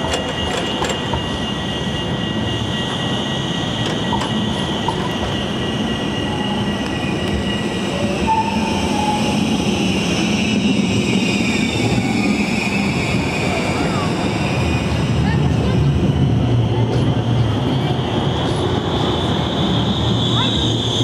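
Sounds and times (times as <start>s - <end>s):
tram running rumble: 0.0s - 21.0s
tram wheels squealing: 0.0s - 21.0s.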